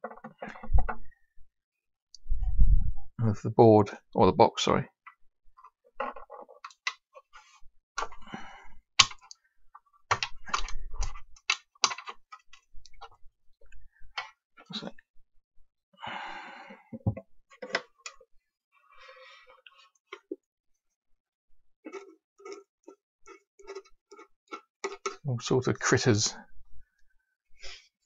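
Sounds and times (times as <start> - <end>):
plastic clicks and knocks: 10.1 - 13.1, 16.9 - 18.2.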